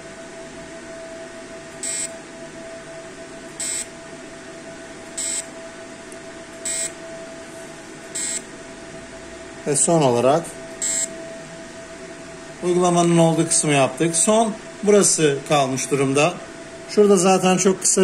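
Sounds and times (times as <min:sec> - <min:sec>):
steady hum: 0:00.0 - 0:18.0
short high beeps: 0:08.2 - 0:08.4, 0:10.8 - 0:11.1.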